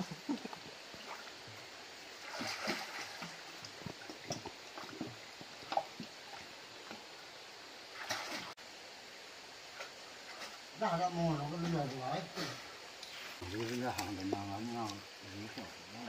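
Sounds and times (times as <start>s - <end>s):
water splashing from swimming: 0.0s - 7.0s, 7.9s - 8.6s, 13.4s - 15.8s.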